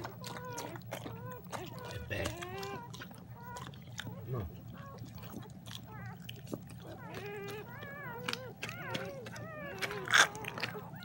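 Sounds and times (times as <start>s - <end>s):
puppy squealing: 0.0s - 11.0s.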